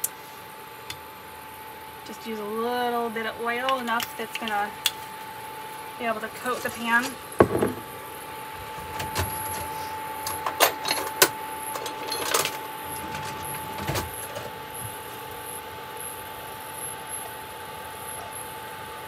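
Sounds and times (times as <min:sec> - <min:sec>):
induction cooktop whine: 0:00.0 - 0:19.0
utensils clattering on counter: 0:06.3 - 0:07.9, 0:09.2 - 0:14.5.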